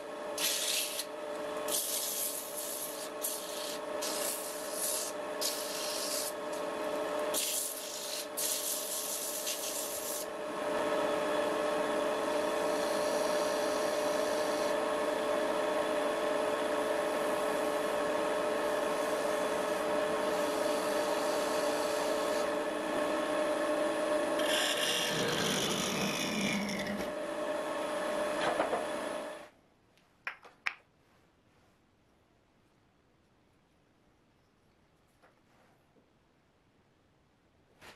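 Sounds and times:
wood lathe hum: 0.0 - 29.5
sandpaper rubbing hiss: 0.4 - 1.1, 1.7 - 6.4, 7.3 - 10.3.

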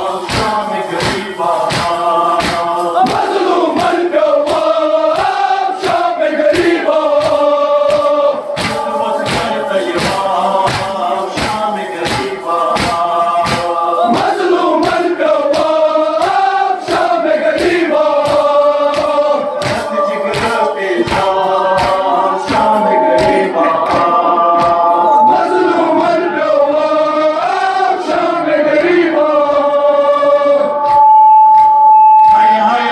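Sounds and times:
men chanting a lament: 0.0 - 31.0, 32.2 - 32.9
sharp rhythmic strikes: 0.0 - 32.9.

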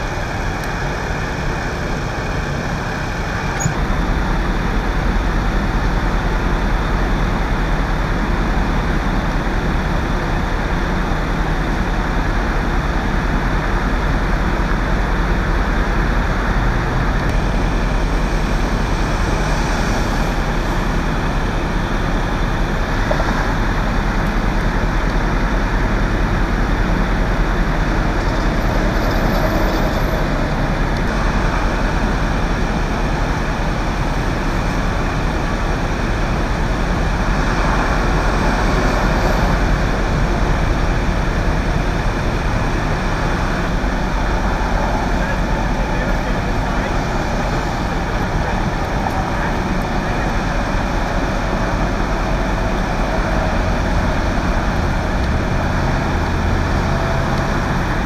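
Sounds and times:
freeway traffic rumble: 0.0 - 58.0.

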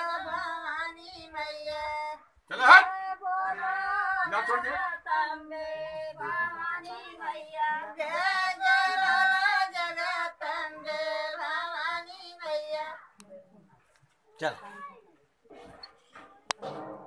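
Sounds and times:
woman singing devotional song: 0.0 - 13.2.

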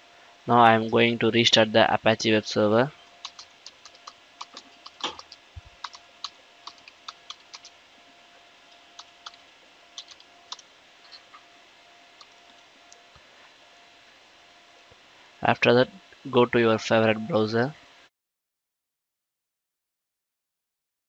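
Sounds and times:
computer keyboard typing: 3.2 - 7.7, 9.0 - 9.4, 10.0 - 10.7.

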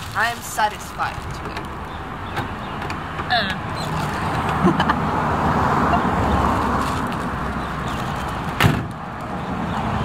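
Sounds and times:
street traffic: 0.0 - 10.0
van door slamming: 8.6 - 9.0.

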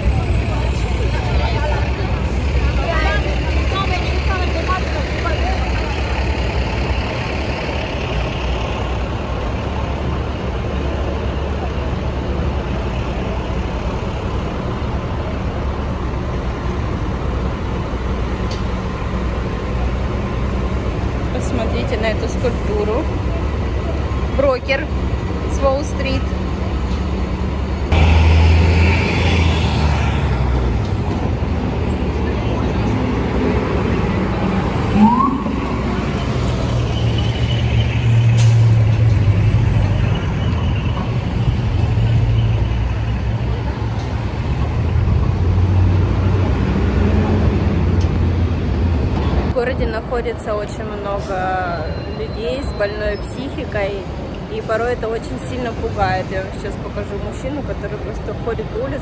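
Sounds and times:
bus diesel engine idling: 0.0 - 28.0
heavy vehicle engine drone: 0.0 - 59.0
street traffic noise: 0.0 - 59.0.

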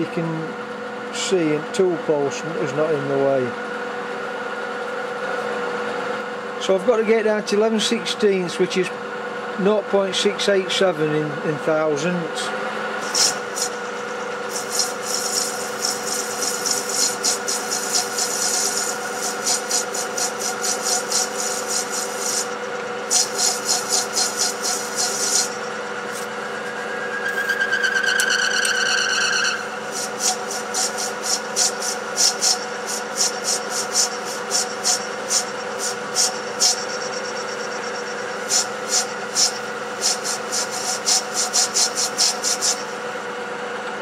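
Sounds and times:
lathe machine hum: 0.0 - 44.0
high tool squeal: 13.0 - 43.0
fast irregular cutting ticks: 14.5 - 22.5, 23.1 - 26.2.

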